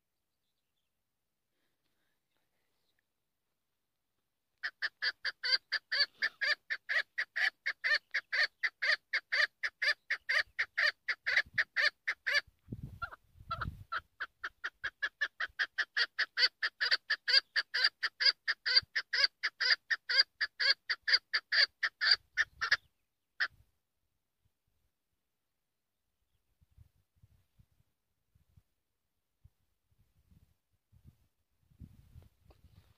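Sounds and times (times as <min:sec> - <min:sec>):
partridge clucking calls: 0:04.6 - 0:23.5.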